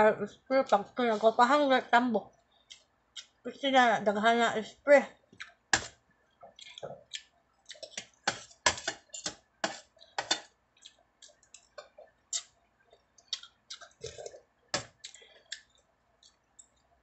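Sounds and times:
cutlery clinking against metal bowl: 0:07.8 - 0:10.5.

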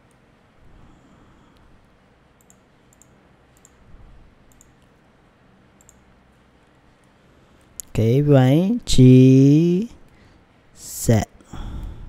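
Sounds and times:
computer mouse clicks: 0:02.4 - 0:03.8, 0:04.4 - 0:05.0, 0:05.8 - 0:06.1.

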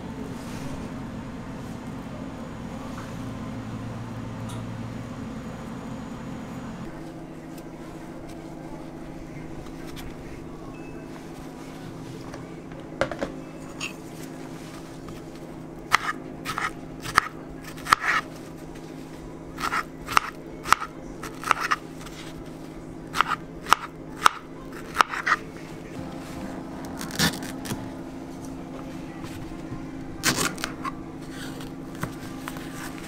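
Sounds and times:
low hum: 0:25.6 - 0:33.0.

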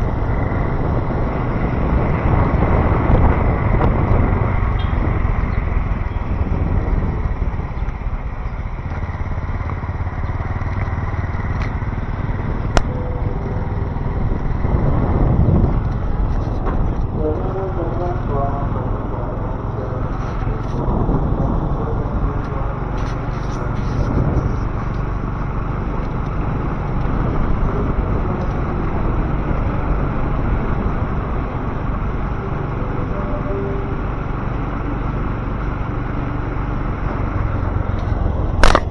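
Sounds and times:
city street traffic rumble: 0:00.0 - 0:38.9
motorcycles passing: 0:00.0 - 0:38.9
sharp click: 0:38.0 - 0:38.9.

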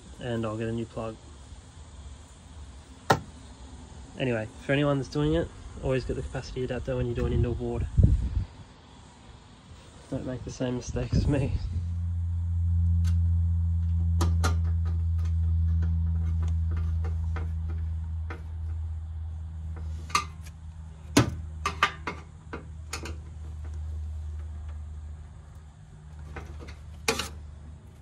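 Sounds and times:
steady low hum: 0:00.0 - 0:28.0
clicks and knocks in metal housing: 0:21.1 - 0:23.4, 0:26.3 - 0:27.4.

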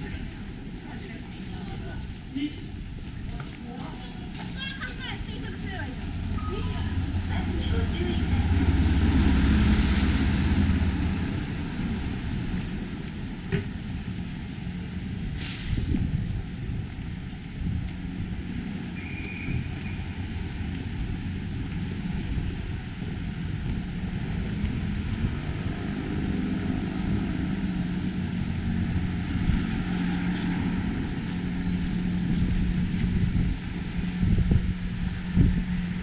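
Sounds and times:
vehicle engine humming: 0:00.0 - 0:36.0
short high tone: 0:06.4 - 0:07.0.

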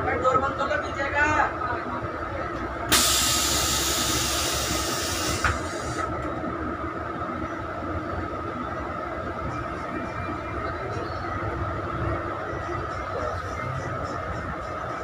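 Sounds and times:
engine hum with high whine: 0:00.0 - 0:15.0
loud hiss: 0:02.9 - 0:06.0.

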